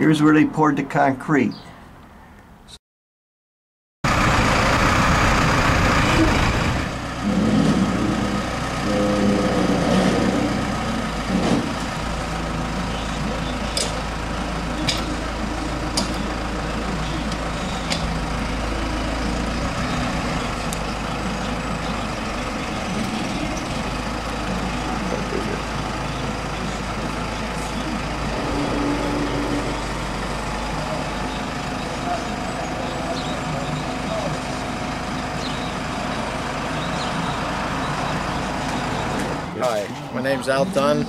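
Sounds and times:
telehandler engine running: 4.0s - 41.0s.

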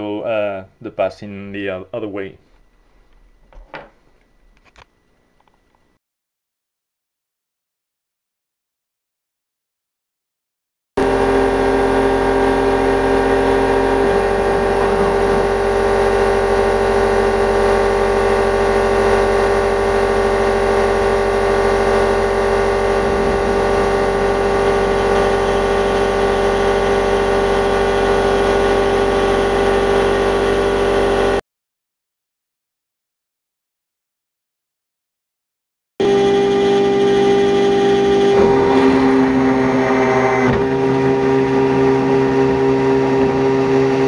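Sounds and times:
end mill cutting metal: 11.0s - 31.4s, 36.0s - 44.0s
router spindle whining: 11.0s - 31.4s, 36.0s - 44.0s.

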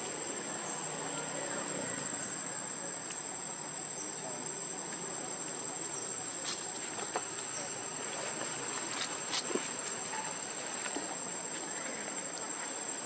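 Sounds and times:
insects trilling: 0.0s - 13.0s
rustles on dry leaves: 6.1s - 12.9s.

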